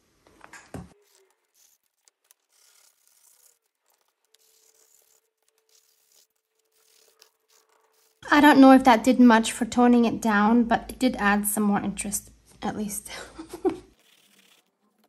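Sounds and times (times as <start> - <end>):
brush dabbing through a stencil: 0.9 - 8.2, 13.9 - 15.0.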